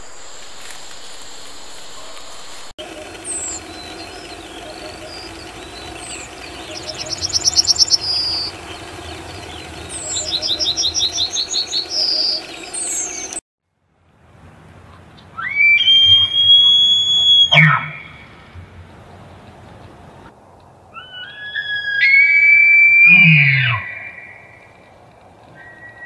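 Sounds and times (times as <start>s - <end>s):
songbird singing: 2.2s - 13.4s
elk bugling: 2.8s - 13.4s.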